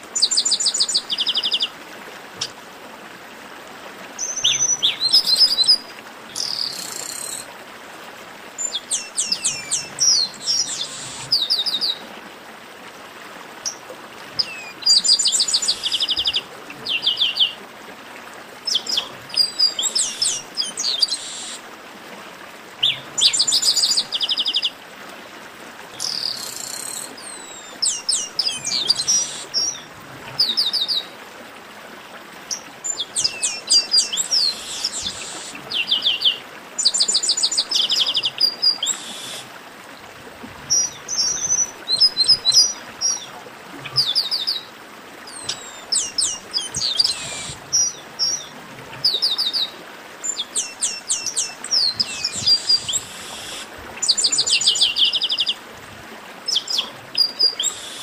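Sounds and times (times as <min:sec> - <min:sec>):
blackbird song: 0:08.6 - 0:12.0, 0:14.4 - 0:17.6, 0:18.7 - 0:21.6, 0:26.0 - 0:31.1, 0:32.5 - 0:39.4, 0:45.3 - 0:49.7, 0:50.3 - 0:55.6.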